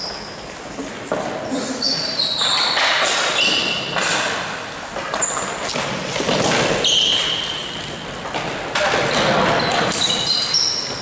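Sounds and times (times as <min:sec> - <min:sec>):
sneakers squeaking on floor: 0:00.0 - 0:04.1, 0:05.1 - 0:08.1, 0:09.1 - 0:11.0
clatter of sticks and ball: 0:02.3 - 0:11.0.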